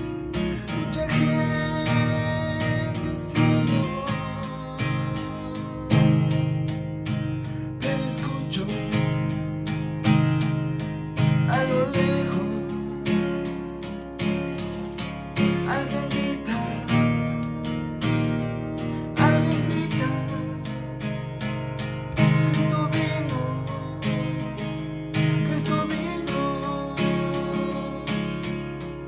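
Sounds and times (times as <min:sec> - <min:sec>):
acoustic guitar strumming chords: 0:00.0 - 0:29.0.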